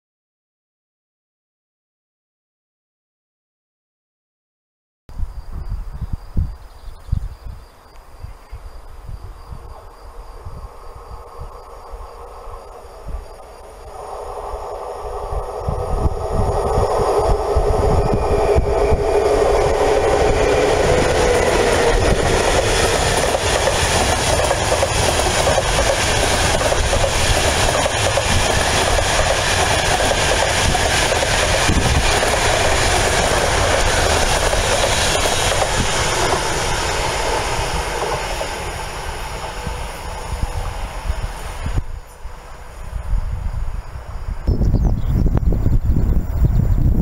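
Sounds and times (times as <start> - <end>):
locomotive steady tone: 8.7 - 47.0
train wheels rumbling on rails: 9.5 - 47.0.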